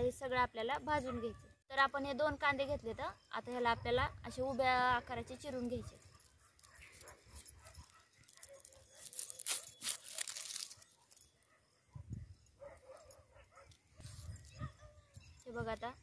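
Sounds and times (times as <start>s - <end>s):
knife scraping onion skin: 8.4s - 10.9s.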